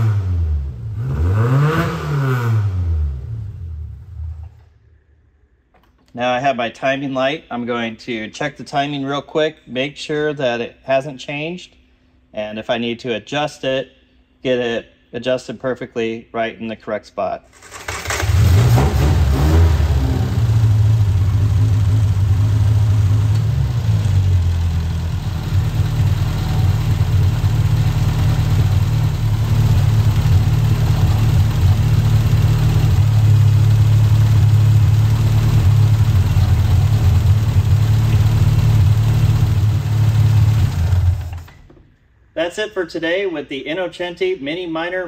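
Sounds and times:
car engine idling: 19.1s - 41.5s.

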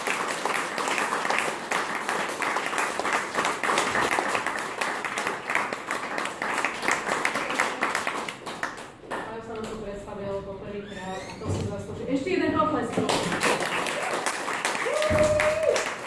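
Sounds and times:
audience applauding: 0.0s - 9.1s, 13.1s - 16.0s.

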